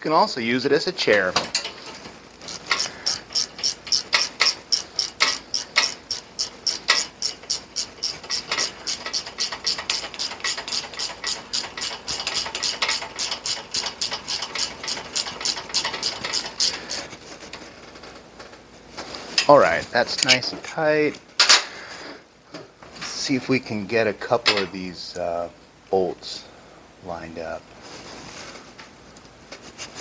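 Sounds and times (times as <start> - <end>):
ratchet wrench clicking: 2.5 - 17.0.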